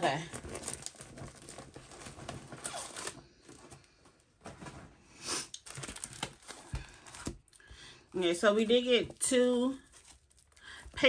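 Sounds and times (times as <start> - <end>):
plastic packaging crinkling: 0.0 - 4.0, 5.5 - 7.6, 8.5 - 11.0.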